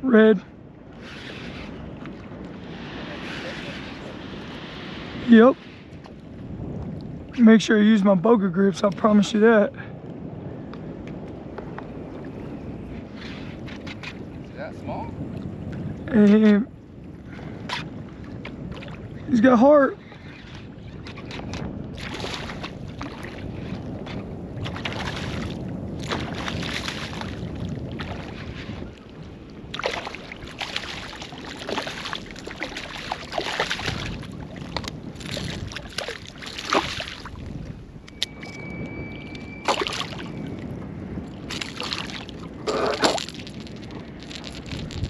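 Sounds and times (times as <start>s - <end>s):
wind noise on microphone: 0.0s - 45.0s
fish splashing in water: 29.7s - 37.4s, 39.5s - 40.4s, 41.5s - 45.0s.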